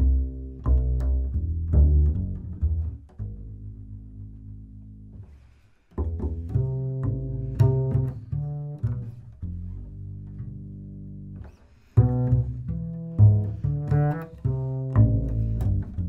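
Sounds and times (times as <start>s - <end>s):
double bass plucked notes: 0.0s - 16.0s.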